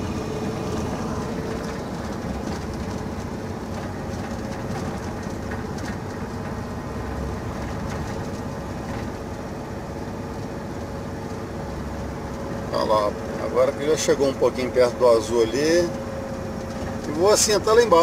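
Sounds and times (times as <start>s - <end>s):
truck diesel engine braking drone: 0.0s - 3.7s
light rattles in cab: 0.0s - 18.0s.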